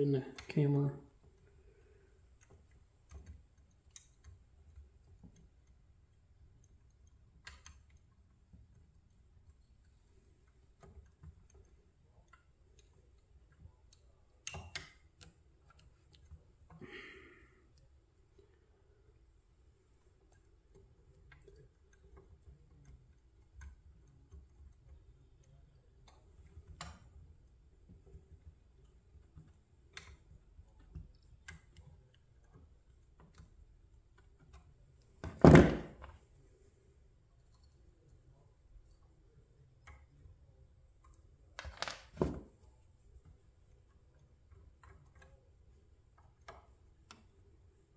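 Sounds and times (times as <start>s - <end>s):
faint clicks of pliers and pin: 0.3s - 35.3s, 36.0s - 47.9s
loud thump: 35.3s - 36.0s.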